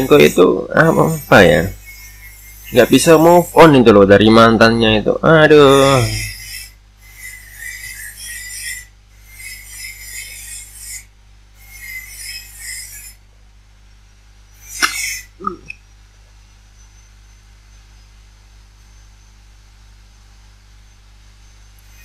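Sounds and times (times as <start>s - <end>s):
angle grinder grinding: 0.0s - 13.2s, 14.6s - 15.7s, 21.8s - 22.0s.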